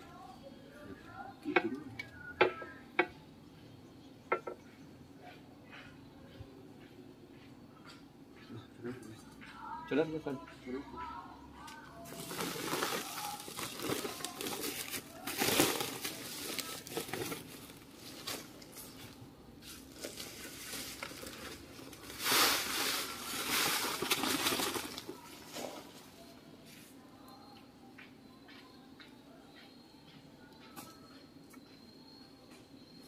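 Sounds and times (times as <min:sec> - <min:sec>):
potting mix rustling by hand: 0:12.0 - 0:27.0.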